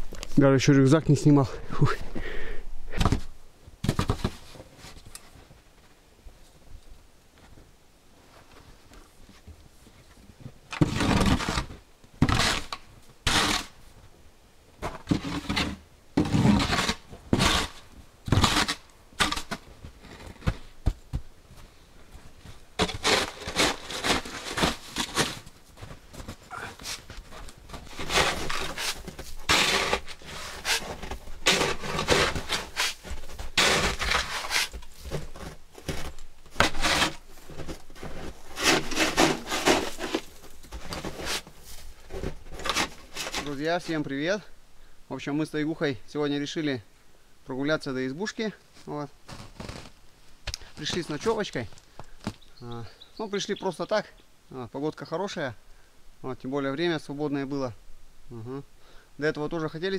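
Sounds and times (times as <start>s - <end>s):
snow shovel scraping snow: 12.3s - 13.7s, 15.2s - 19.5s, 22.8s - 25.9s, 27.8s - 43.6s.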